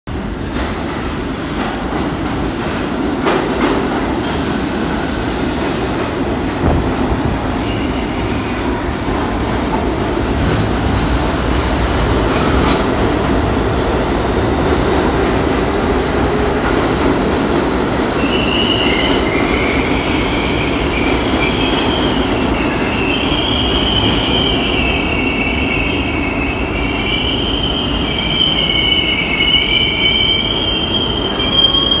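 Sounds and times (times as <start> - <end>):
subway train rumbling and clattering: 0.1 - 32.0
train wheels squealing: 18.2 - 32.0.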